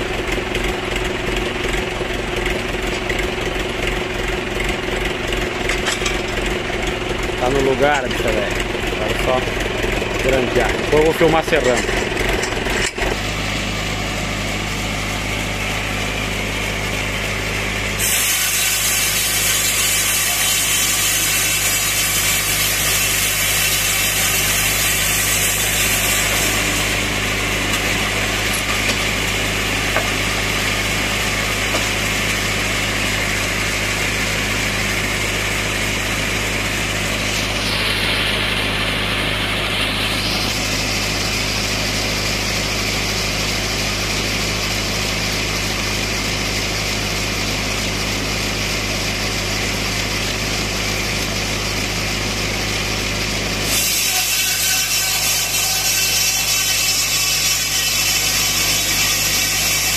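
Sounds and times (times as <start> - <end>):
tractor engine running under load: 0.0 - 53.7, 57.0 - 59.9
sawmill hiss: 13.2 - 59.9.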